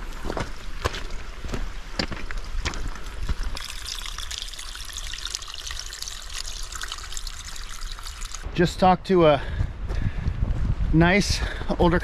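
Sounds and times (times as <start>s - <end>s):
footsteps on rocky trail: 0.0s - 3.6s, 9.3s - 12.0s
waterfall trickling over rocks: 2.3s - 8.5s.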